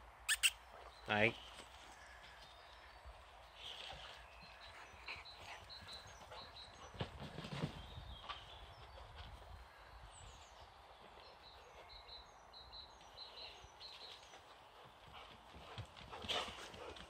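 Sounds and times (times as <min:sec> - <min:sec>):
bird chirping: 0:00.3 - 0:01.7.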